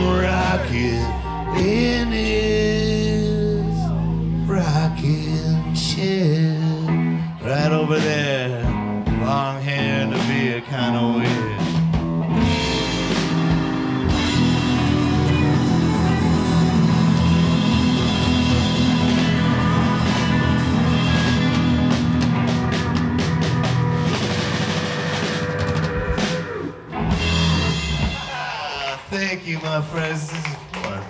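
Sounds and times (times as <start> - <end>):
person singing: 0.0 - 11.8, 14.1 - 21.9
live rock band playing: 0.0 - 30.8
guitar: 0.0 - 31.0.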